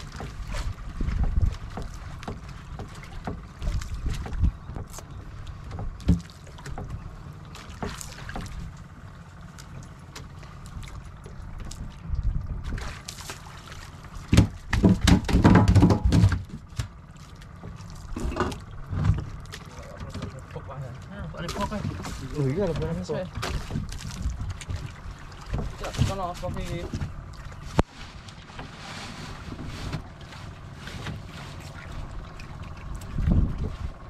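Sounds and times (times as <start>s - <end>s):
knocks on boat: 0.0s - 5.0s, 5.6s - 7.0s, 7.6s - 8.7s, 14.2s - 17.0s, 17.6s - 20.4s, 21.5s - 27.2s
water sloshing around boat: 0.0s - 34.0s.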